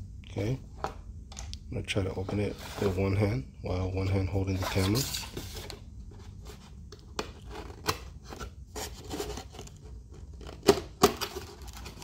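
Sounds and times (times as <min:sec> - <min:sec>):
cardboard rubbing and scraping: 0:02.3 - 0:03.2, 0:07.4 - 0:09.8.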